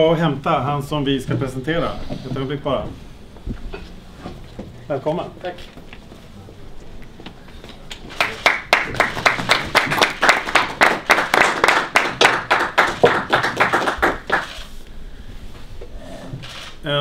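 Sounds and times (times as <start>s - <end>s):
small audience applauding: 7.9s - 14.7s.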